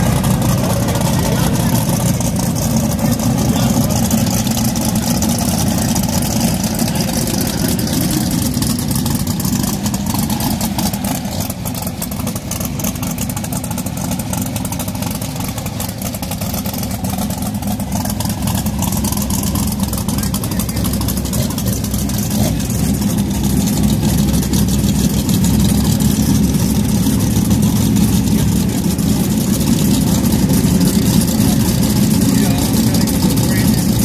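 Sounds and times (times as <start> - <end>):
race car engines idling loudly: 0.0 - 34.0.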